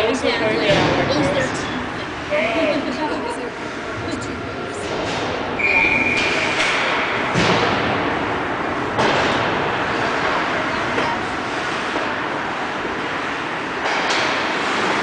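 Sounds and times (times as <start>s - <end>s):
hockey pucks and sticks knocking: 8.8s - 15.0s.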